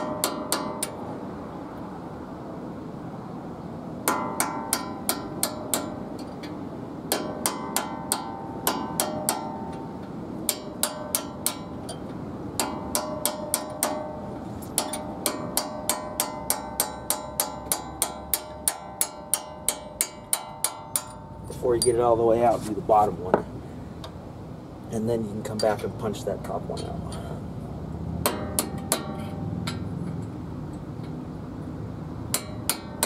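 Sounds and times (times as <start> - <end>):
hammer striking steel punch: 0.0 - 1.0, 4.0 - 6.0, 7.1 - 9.8, 10.4 - 12.0, 12.6 - 22.0, 28.2 - 29.8, 32.3 - 33.0.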